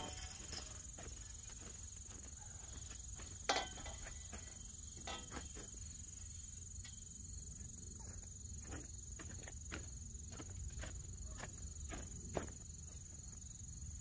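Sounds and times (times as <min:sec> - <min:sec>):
metal pole clanking: 0:00.0 - 0:00.8, 0:03.4 - 0:05.6.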